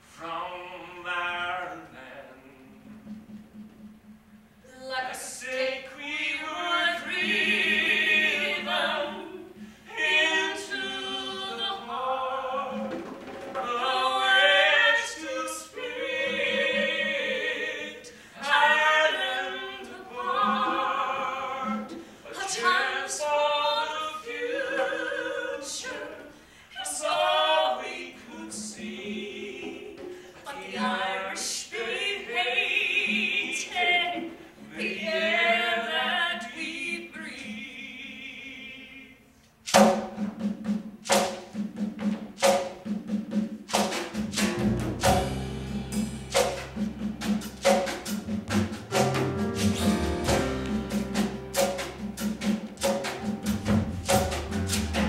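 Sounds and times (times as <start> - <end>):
man singing with vibrato: 0.0 - 2.9
singer breathing: 9.6 - 9.9, 18.1 - 18.4, 21.9 - 22.3, 26.3 - 26.8, 30.1 - 30.5.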